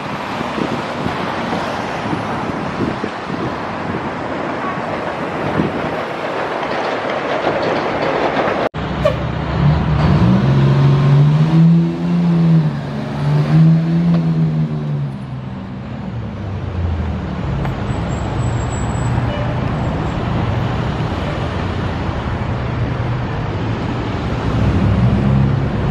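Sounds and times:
passing car traffic: 0.0s - 25.9s
fire engine diesel engine: 8.6s - 25.9s.

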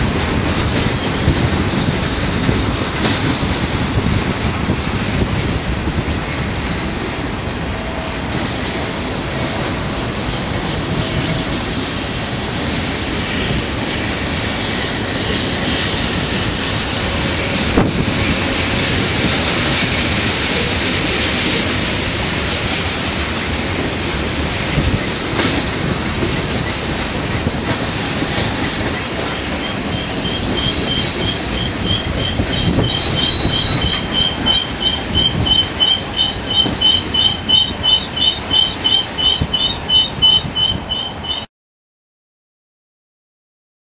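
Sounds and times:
train wheels rumbling on rails: 0.0s - 41.5s
pulsing high-pitched squeal: 29.6s - 41.5s.

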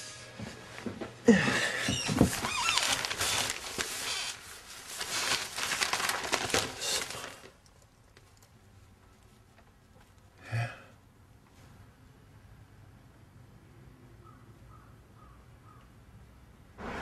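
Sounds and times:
short creaks: 1.8s - 4.4s
newspaper pages rustling: 2.1s - 8.5s.

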